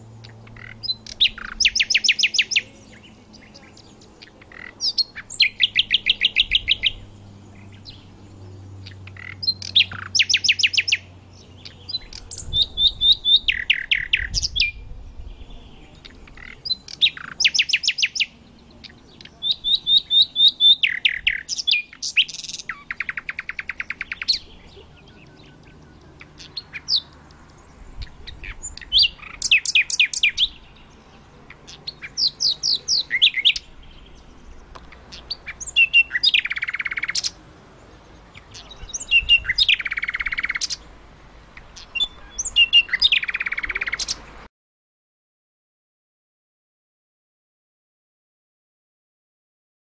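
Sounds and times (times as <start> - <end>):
nightingale singing trills: 0.0 - 44.5.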